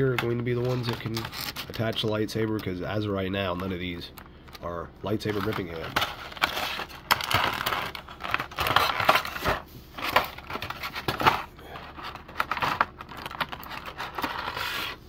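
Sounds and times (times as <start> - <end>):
plastic tray crinkling and crackling: 0.0 - 2.8, 5.1 - 15.0.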